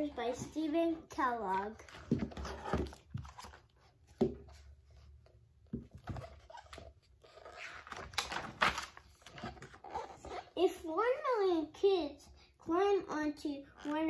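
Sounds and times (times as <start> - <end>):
book being handled: 1.4 - 10.5
paper rustling page turn: 6.6 - 9.9.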